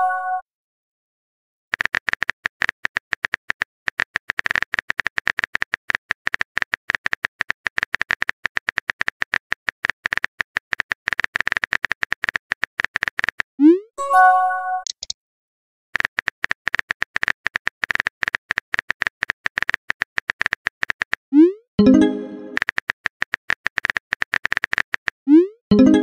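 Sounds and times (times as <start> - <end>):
phone keyboard clicks: 14.8 - 15.1, 16.0 - 21.2.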